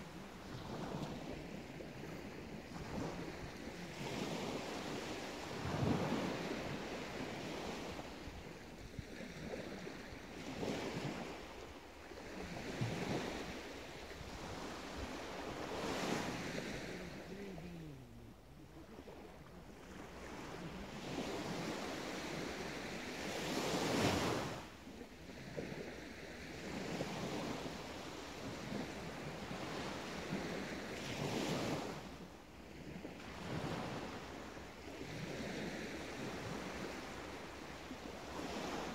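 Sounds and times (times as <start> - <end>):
small waves breaking on shore: 0.0 - 38.9.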